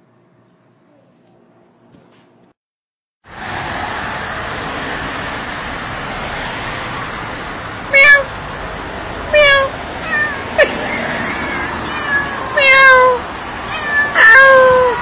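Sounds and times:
car road and wind noise: 0:03.3 - 0:15.0
cat meowing: 0:07.9 - 0:08.3, 0:09.4 - 0:15.0.

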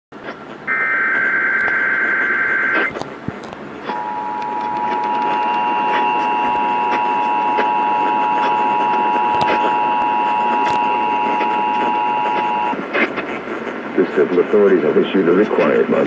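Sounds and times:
radio static: 0:00.2 - 0:16.0
two-tone alert signal: 0:00.7 - 0:02.9, 0:03.9 - 0:12.8
buzzy data burst: 0:00.7 - 0:03.0, 0:03.9 - 0:13.7.

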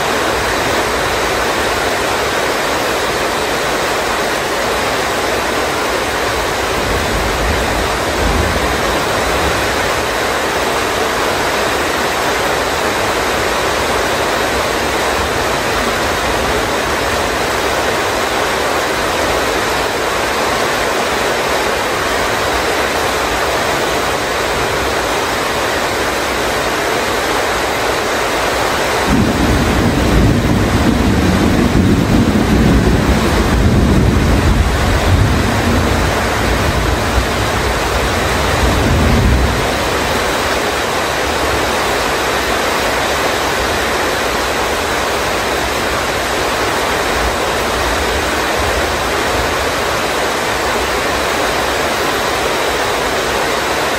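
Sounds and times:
heavy rain pouring: 0:00.0 - 0:53.9
thunder rumbling: 0:05.5 - 0:20.3, 0:29.0 - 0:42.6.

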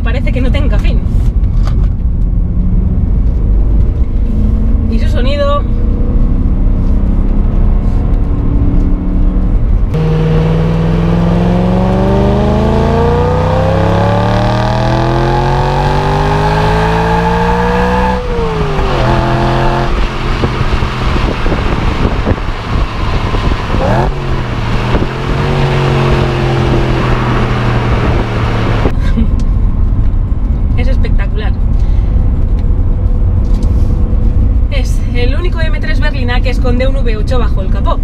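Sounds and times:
car engine revving: 0:02.3 - 0:29.0.

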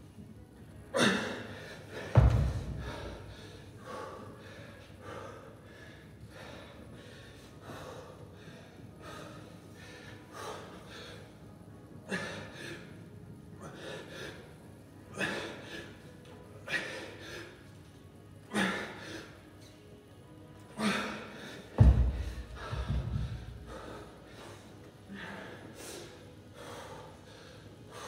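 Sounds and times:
man gasping breathing: 0:20.8 - 0:28.0.

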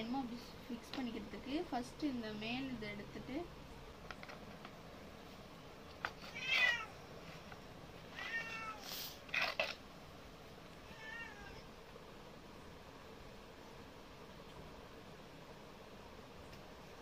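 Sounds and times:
cat meowing: 0:06.2 - 0:07.0, 0:08.1 - 0:08.9, 0:10.8 - 0:11.7.

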